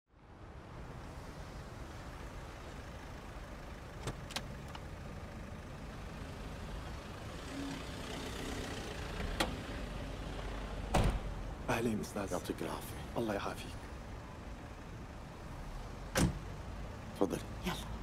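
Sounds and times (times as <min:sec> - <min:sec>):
street traffic: 0:00.1 - 0:18.0
car passing: 0:05.2 - 0:11.7.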